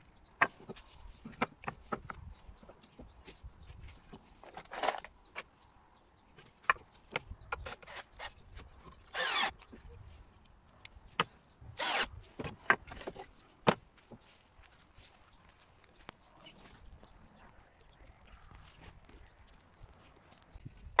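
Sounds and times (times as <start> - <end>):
wood scraping: 7.5 - 9.6, 11.8 - 14.8.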